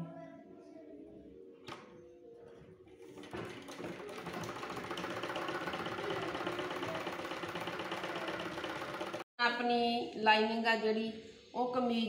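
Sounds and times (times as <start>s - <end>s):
sewing machine running: 3.2s - 9.3s.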